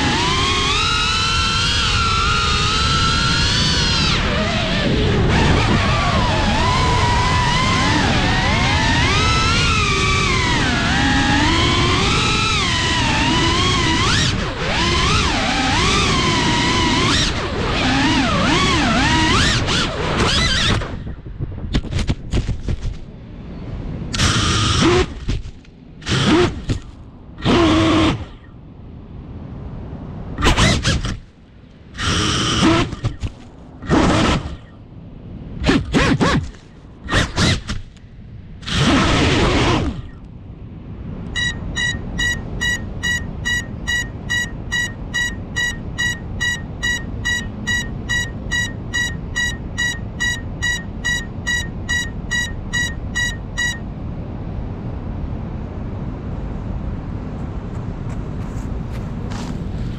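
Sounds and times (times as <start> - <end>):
drone motor and propeller bursts: 0.0 - 21.2, 24.2 - 28.5, 30.4 - 31.3, 32.0 - 34.8, 38.6 - 40.2, 41.4 - 53.8
buzzer beeping: 41.3 - 53.8.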